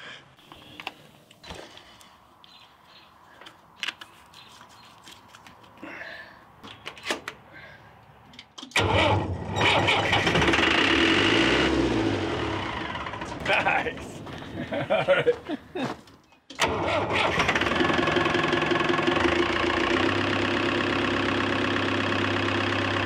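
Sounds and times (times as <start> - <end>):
diesel engine starting and running: 5.9 - 14.8, 16.5 - 23.0.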